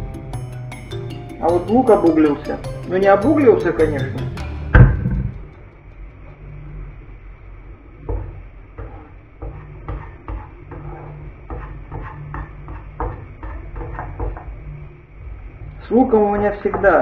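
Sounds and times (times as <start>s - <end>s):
low steady hum: 1.0s - 17.0s
spatula scraping frying pan: 8.0s - 14.8s.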